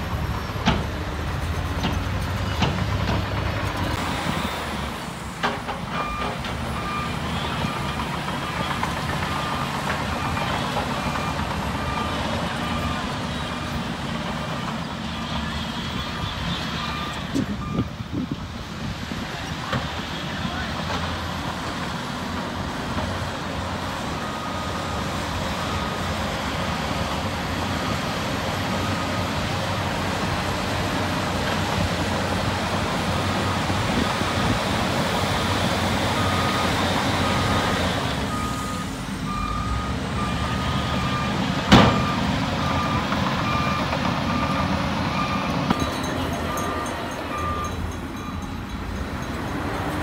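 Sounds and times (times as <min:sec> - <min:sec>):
dump truck running: 0:00.0 - 0:50.0
reversing alarm beeping: 0:05.9 - 0:13.4, 0:16.2 - 0:18.0, 0:24.1 - 0:26.3, 0:36.1 - 0:49.4.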